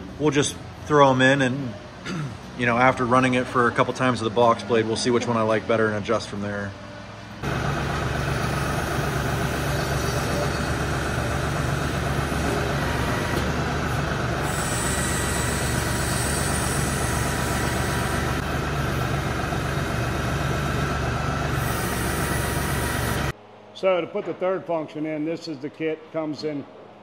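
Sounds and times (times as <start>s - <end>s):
tractor diesel engine idling: 7.4s - 23.3s.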